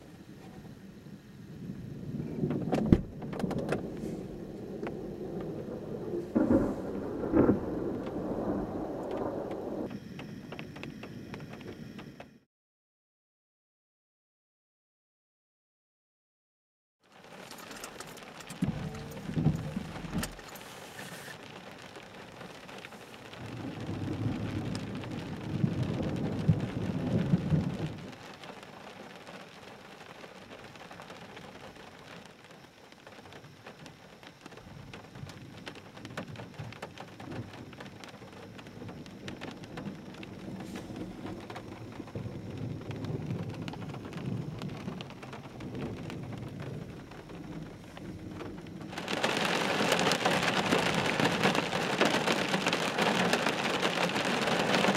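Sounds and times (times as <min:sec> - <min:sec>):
steady rain: 0:00.0 - 0:12.1, 0:17.0 - 0:54.9
thunder rumbling: 0:00.8 - 0:09.9, 0:17.5 - 0:20.8, 0:23.2 - 0:28.3, 0:34.6 - 0:54.9.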